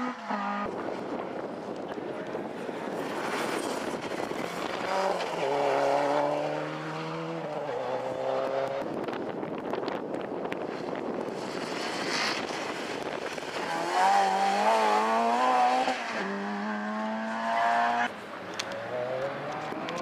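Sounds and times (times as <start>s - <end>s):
rally car engine revving: 3.0s - 9.2s, 10.6s - 20.0s.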